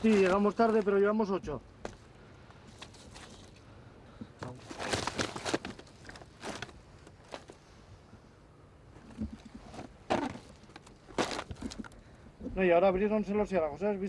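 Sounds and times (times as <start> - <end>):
rustling and scuffing handling: 0.0 - 1.2, 9.0 - 12.0.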